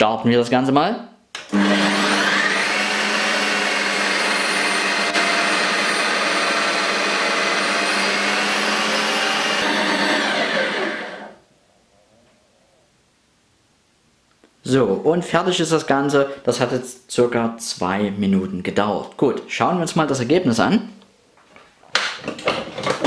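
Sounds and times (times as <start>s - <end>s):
ice cream maker motor whirring: 1.4s - 11.4s.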